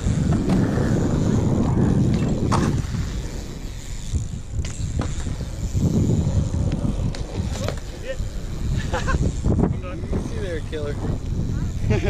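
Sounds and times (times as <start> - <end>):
bike clicks and knocks: 0.0 - 8.7
bike tyres rolling on concrete: 0.0 - 12.0.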